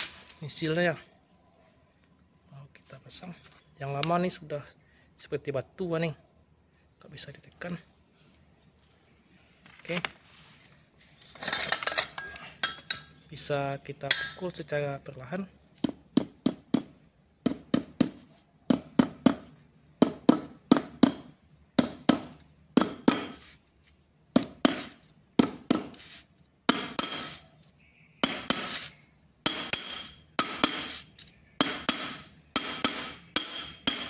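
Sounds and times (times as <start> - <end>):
hammer tapping metal: 17.5 - 23.4, 29.5 - 31.0, 31.6 - 34.0.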